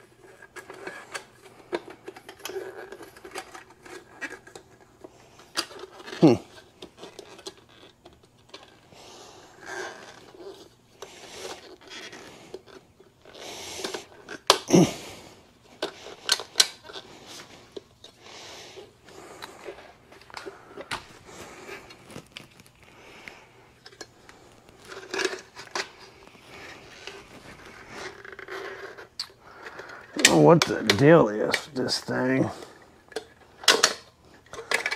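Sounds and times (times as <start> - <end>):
metal parts clicking and scraping: 0.0 - 8.8, 15.6 - 34.9
soft rustling: 16.8 - 29.5.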